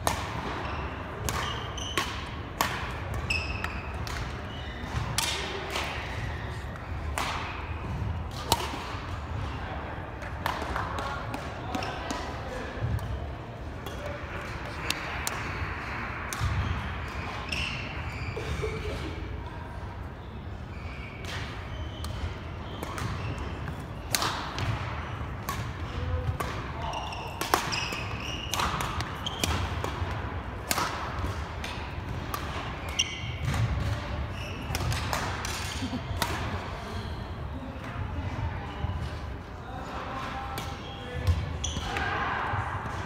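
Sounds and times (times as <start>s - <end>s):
sneakers squeaking: 0.1s - 9.5s, 10.4s - 42.3s
racket striking shuttlecock: 1.2s - 4.4s, 5.0s - 6.0s, 7.1s - 7.5s, 8.3s - 9.0s, 22.8s - 26.7s, 27.4s - 34.0s.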